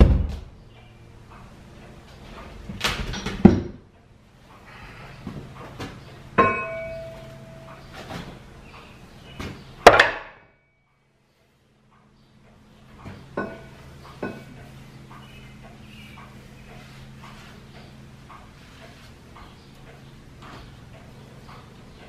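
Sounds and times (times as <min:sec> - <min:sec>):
steady low hum: 0:00.0 - 0:22.0
metal clanks and knocks: 0:01.8 - 0:04.0, 0:05.2 - 0:08.4, 0:12.0 - 0:14.7.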